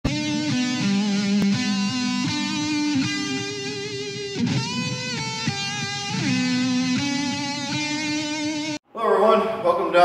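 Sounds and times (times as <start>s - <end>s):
instrumental guitar music: 0.1s - 8.8s.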